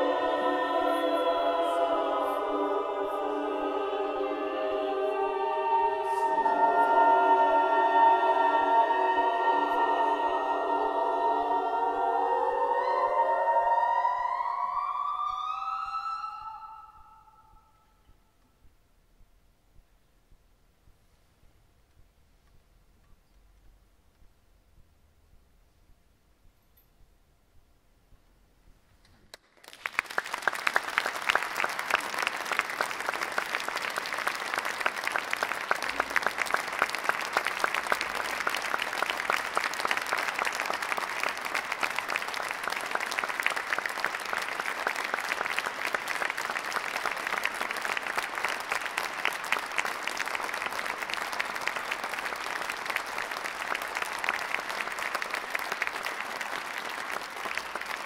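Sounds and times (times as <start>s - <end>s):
audience applauding: 29.3s - 58.0s.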